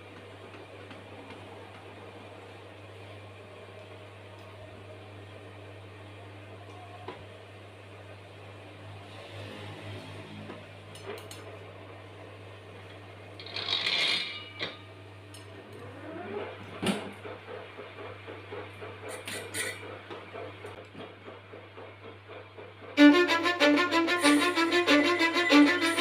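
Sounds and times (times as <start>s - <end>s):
lathe spinning with whine: 23.0s - 26.0s.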